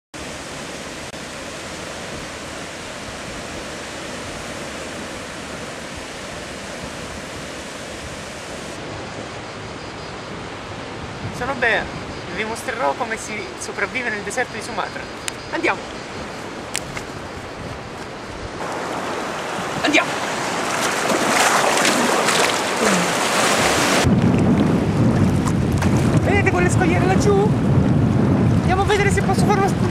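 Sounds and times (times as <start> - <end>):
wind on microphone: 0.2 - 12.6, 15.1 - 29.9
sea surf rushing: 0.2 - 29.9
water splashing from swimming: 18.6 - 24.1.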